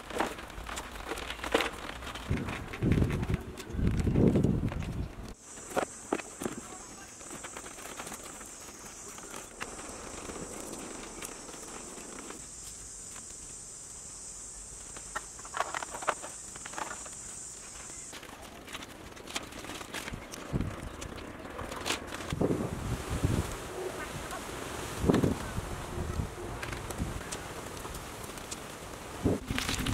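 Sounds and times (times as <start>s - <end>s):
high insect buzz: 5.4s - 19.8s.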